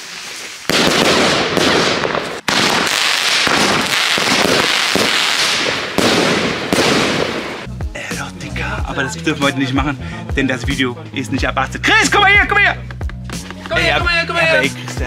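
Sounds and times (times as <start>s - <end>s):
firework rockets bursting: 0.0s - 7.7s.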